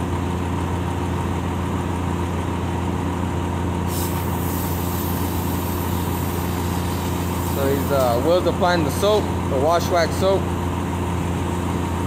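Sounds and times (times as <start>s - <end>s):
idling engines drone: 0.0s - 12.0s
hiss of spray: 3.9s - 8.3s
pressure-washing units: 3.9s - 10.5s.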